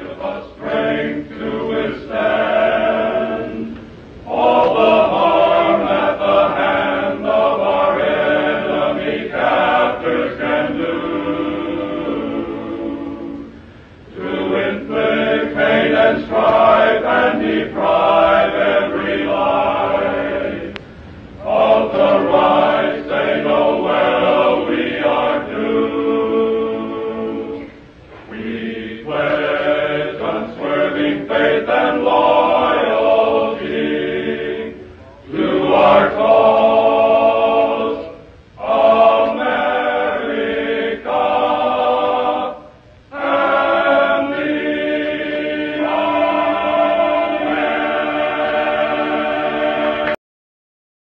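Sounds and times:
male choir singing a hymn: 0:00.0 - 0:50.2
singers breathing: 0:13.5 - 0:14.1, 0:20.8 - 0:21.4.

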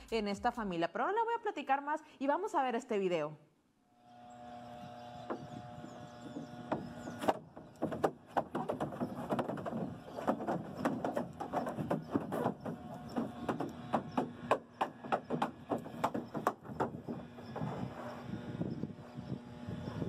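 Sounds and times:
rapid knocks and clattering clicks: 0:06.2 - 0:17.7.

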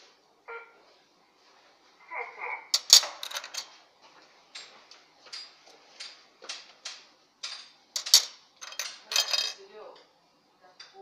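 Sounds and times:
metal brackets clinking: 0:02.8 - 0:03.8, 0:04.5 - 0:09.7.

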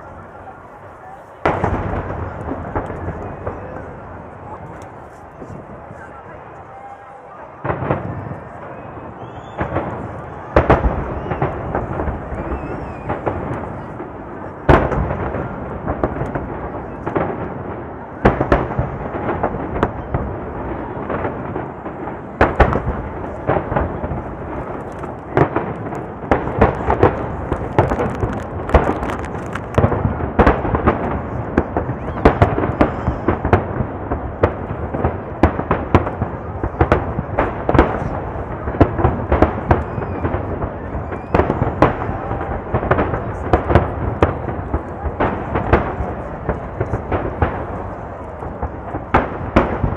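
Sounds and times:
rolling rumble and crackle: 0:00.0 - 0:06.7, 0:09.3 - 0:49.9
fireworks bursting: 0:00.0 - 0:49.9.

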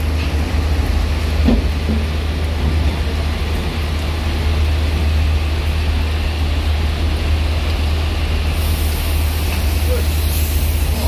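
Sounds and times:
bus diesel engine droning: 0:00.0 - 0:11.0
heavy rain hiss: 0:03.9 - 0:11.0.

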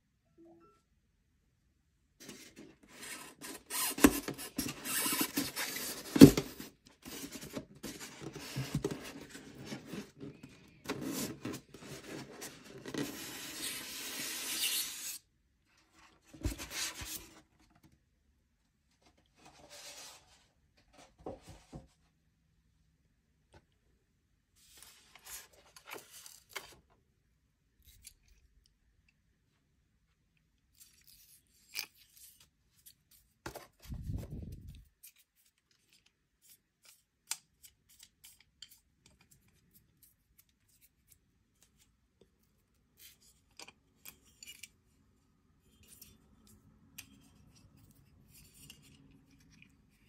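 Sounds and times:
foam lid squeaking against box: 0:03.6 - 0:05.8.

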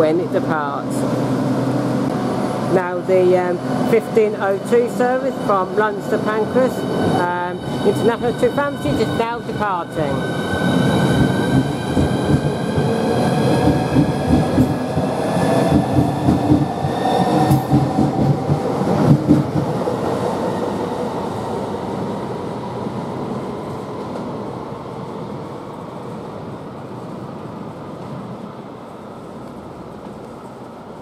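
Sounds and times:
train wheels rumbling on rails: 0:00.0 - 0:21.4.

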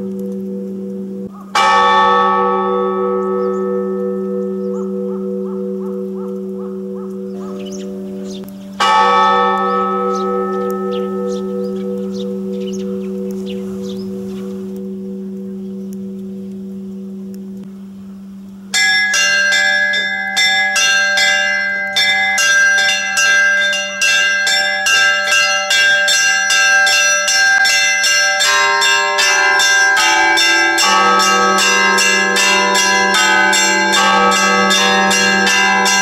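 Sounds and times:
steady low hum: 0:00.0 - 0:01.4, 0:10.9 - 0:18.7
church bells pealing: 0:00.0 - 0:36.0
deeper bells ringing: 0:00.0 - 0:36.0.

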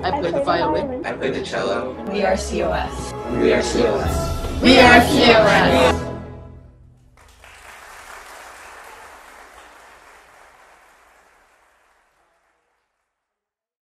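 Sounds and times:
group applause: 0:07.2 - 0:13.2.

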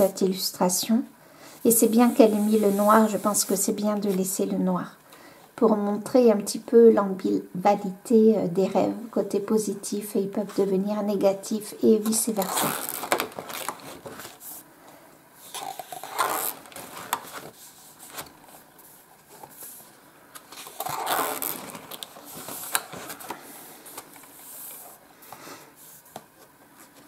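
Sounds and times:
book pages turning: 0:12.3 - 0:14.5, 0:15.4 - 0:25.0
paper rustling: 0:12.4 - 0:14.4, 0:15.5 - 0:25.0.

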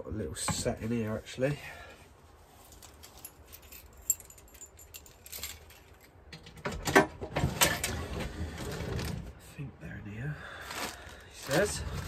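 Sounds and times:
metal hand tools clinking: 0:02.7 - 0:06.2.

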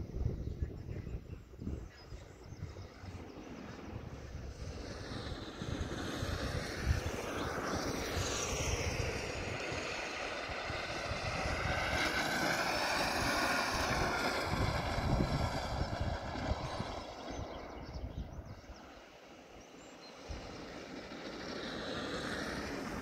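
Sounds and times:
electric kart motor whining: 0:04.4 - 0:18.0, 0:20.2 - 0:23.0.

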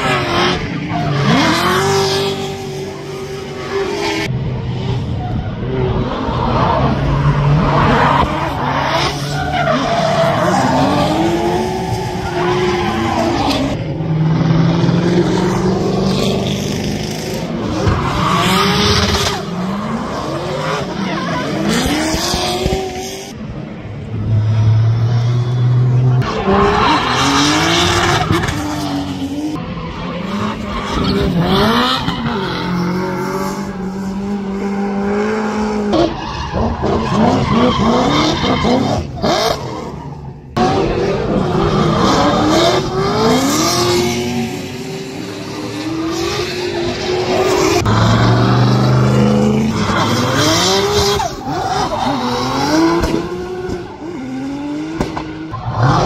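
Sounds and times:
car engines revving: 0:00.0 - 0:56.0.

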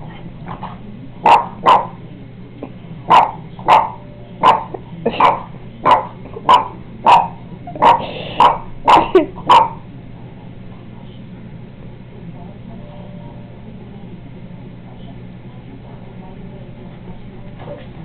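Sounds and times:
dog barking: 0:01.2 - 0:02.0, 0:03.1 - 0:09.8.

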